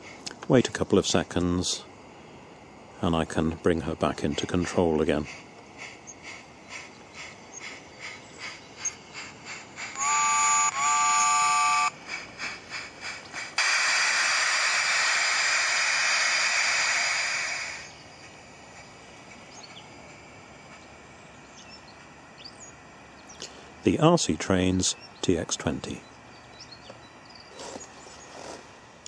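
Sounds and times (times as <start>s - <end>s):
steam locomotive chuffing: 0.0s - 29.0s
safety valve hiss: 5.3s - 10.1s, 11.2s - 18.1s
locomotive whistle blast: 10.0s - 12.0s.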